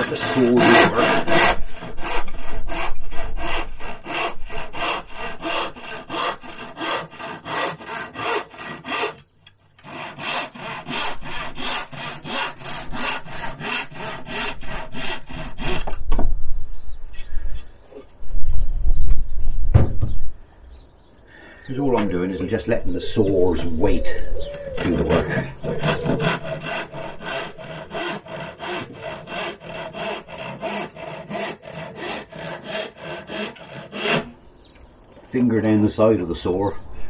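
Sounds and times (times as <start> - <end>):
handsaw cutting wood: 0.0 - 16.0, 24.9 - 34.4.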